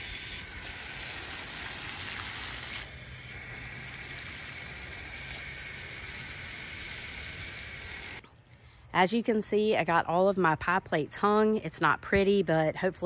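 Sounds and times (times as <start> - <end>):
hose water spraying on plants: 0.0 - 8.2.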